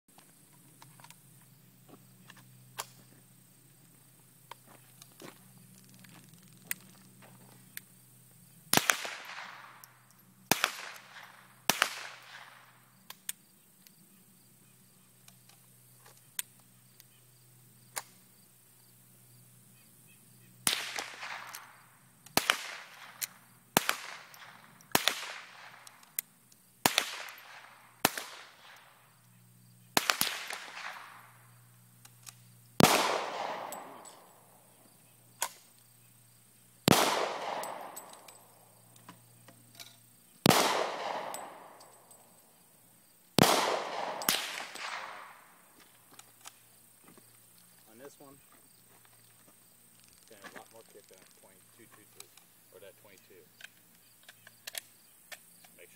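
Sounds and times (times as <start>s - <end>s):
distant gunshots: 8.7s - 9.9s, 10.5s - 12.8s, 20.6s - 26.0s, 26.8s - 29.0s, 29.9s - 31.4s, 32.8s - 34.5s, 36.8s - 38.5s, 40.4s - 42.1s, 43.4s - 45.6s
handgun shots with echo: 20.6s - 21.8s, 22.4s - 26.1s, 29.9s - 31.4s, 32.8s - 34.5s, 36.9s - 38.5s, 40.4s - 42.1s, 43.4s - 45.6s.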